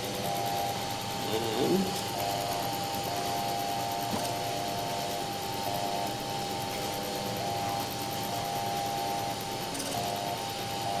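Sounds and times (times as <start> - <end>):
cooling fans whirring: 0.0 - 11.0
stepper motor whine: 0.0 - 11.0.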